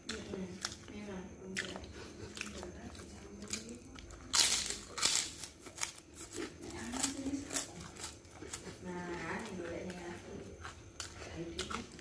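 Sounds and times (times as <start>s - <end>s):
food wrapping crinkling: 2.7s - 12.0s.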